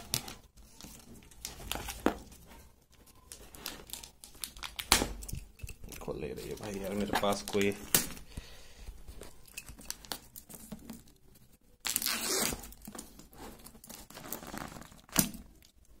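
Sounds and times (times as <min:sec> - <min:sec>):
plastic wrap crinkling: 0:00.0 - 0:08.3, 0:09.0 - 0:16.0
plastic wrap ripping: 0:03.3 - 0:05.3, 0:11.8 - 0:13.0, 0:13.6 - 0:15.7.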